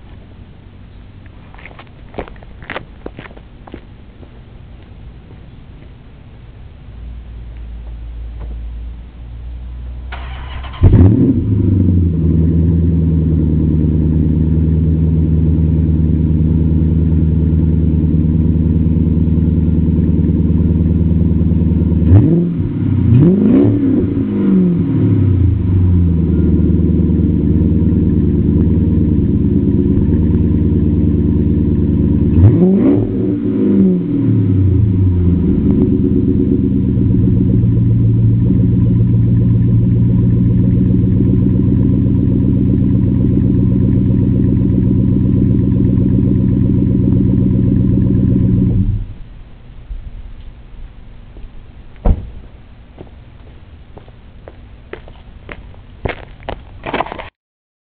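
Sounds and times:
car engine idling: 0.0 - 56.9
engine revving: 10.1 - 49.2.

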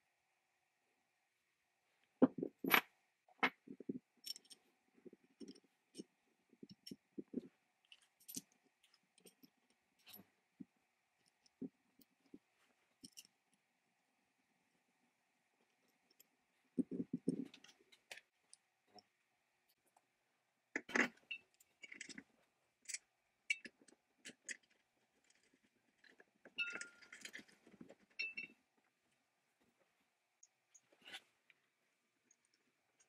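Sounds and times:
small steel parts clicking: 4.2 - 4.6, 7.8 - 10.2, 13.0 - 13.3, 20.8 - 28.5.

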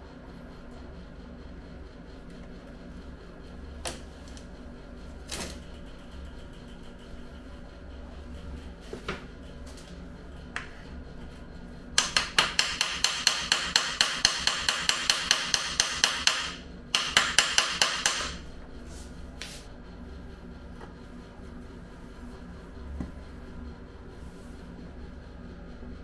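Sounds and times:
rapid hammer taps on metal: 12.0 - 18.4.

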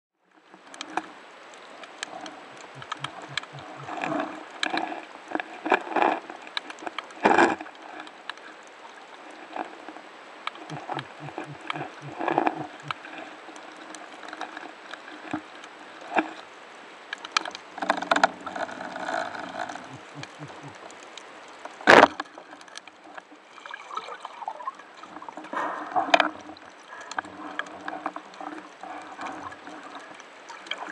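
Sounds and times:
bubbling: 1.8 - 4.6, 10.5 - 13.4, 17.7 - 21.1
small clicks: 1.8 - 4.9.

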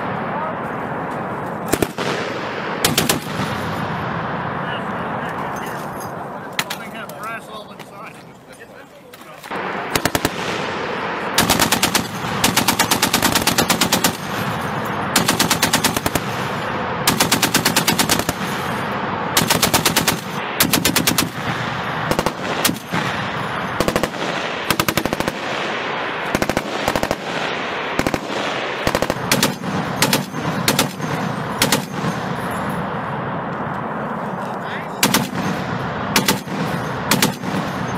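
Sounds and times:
rolling gunfire echo: 0.0 - 8.2, 9.2 - 37.9
heavy machine guns firing bursts: 1.7 - 3.8, 9.5 - 32.6, 35.0 - 37.9.

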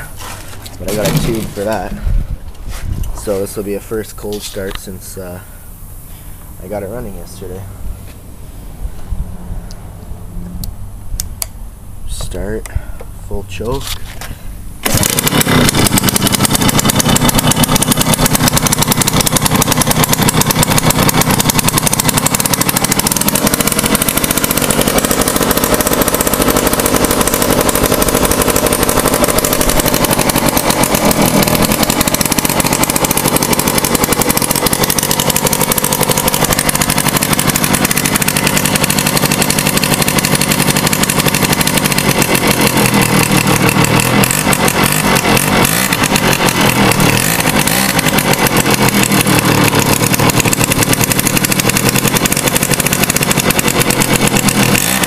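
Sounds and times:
small two-stroke engine running: 0.0 - 2.0, 14.8 - 55.0.

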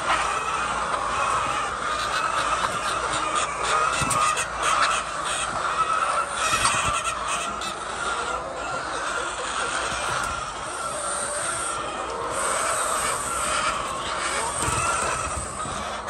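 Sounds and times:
chickens clucking and squawking: 0.0 - 16.0.

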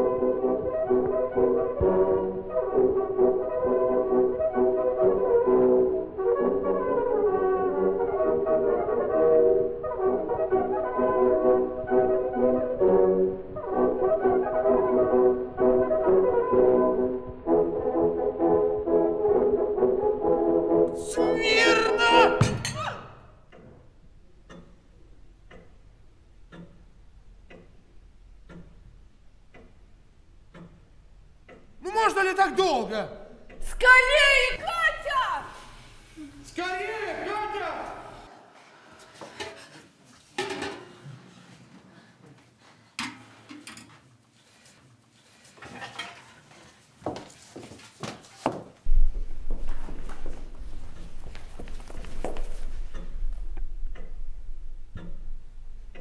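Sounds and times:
clock ticking: 6.4 - 35.6, 48.9 - 56.0.

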